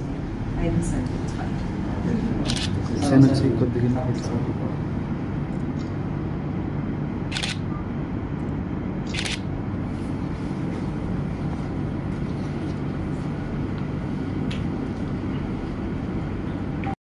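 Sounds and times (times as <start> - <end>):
low rumble of room noise: 0.0 - 17.0
camera shutter clicking: 2.5 - 2.7, 7.3 - 7.6, 9.1 - 9.4.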